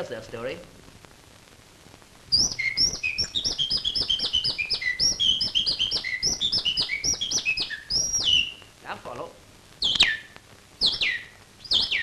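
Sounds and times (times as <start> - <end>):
man whistling birdsong imitation: 2.3 - 8.6, 9.8 - 12.0.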